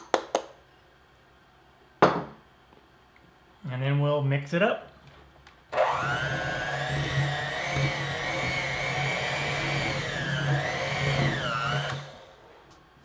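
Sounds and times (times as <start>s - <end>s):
electric hand mixer whining: 5.7s - 12.4s.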